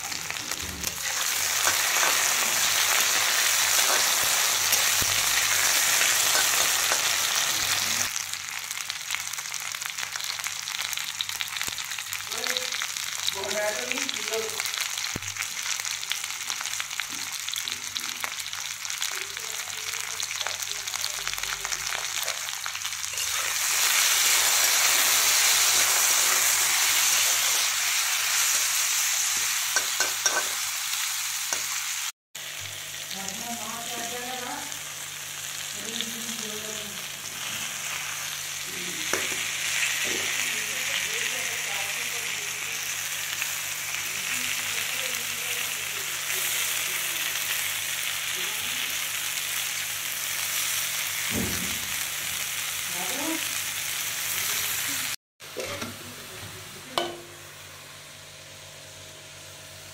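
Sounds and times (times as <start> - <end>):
vegetables sizzling in hot oil: 0.0 - 59.9
spatula scraping pan: 29.3 - 30.7.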